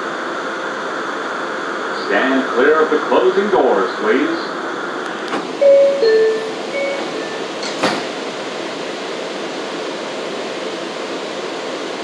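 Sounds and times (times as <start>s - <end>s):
subway car ventilation hiss: 0.0s - 12.0s
train doors closing clunk: 5.1s - 8.4s
door chime: 5.6s - 7.5s.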